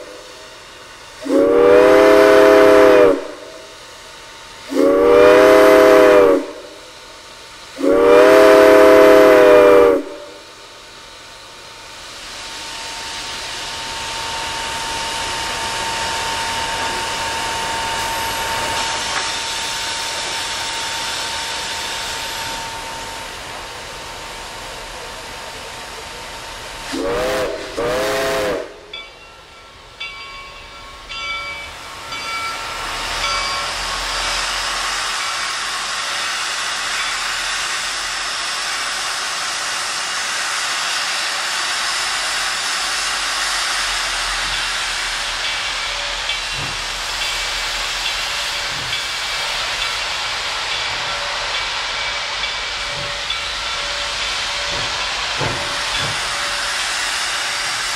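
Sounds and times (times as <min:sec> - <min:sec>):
steam whistle toots: 0:00.0 - 0:00.6, 0:01.2 - 0:03.8, 0:04.7 - 0:06.9, 0:07.8 - 0:10.5, 0:26.8 - 0:29.1
steam venting from cylinder cocks: 0:00.0 - 0:10.6, 0:12.0 - 0:30.3, 0:30.9 - 0:57.9
steam locomotive hissing: 0:00.0 - 0:57.9.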